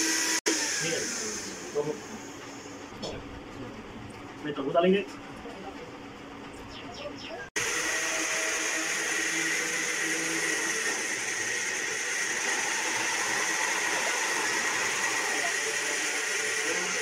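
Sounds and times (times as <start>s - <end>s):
electric blender running: 0.0s - 2.9s, 7.6s - 17.0s.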